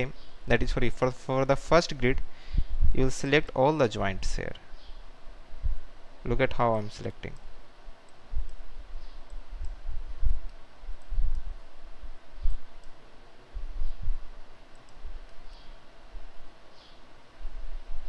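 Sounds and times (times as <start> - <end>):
computer mouse clicking: 8.1 - 11.5, 14.7 - 15.7.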